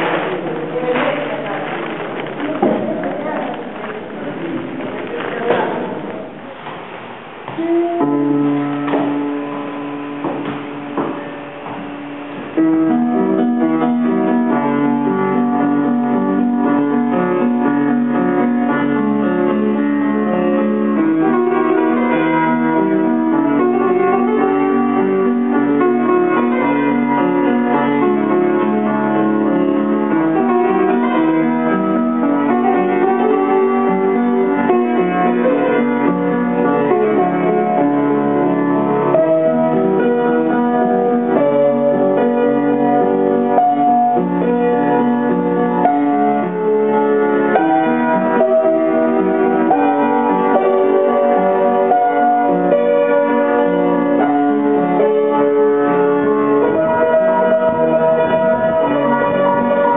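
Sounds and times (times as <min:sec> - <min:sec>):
upright piano playing: 0:00.0 - 0:59.9.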